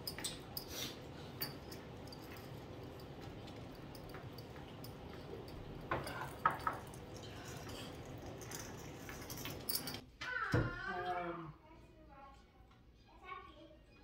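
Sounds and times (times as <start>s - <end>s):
cups and dishes clinking: 0.0s - 10.0s.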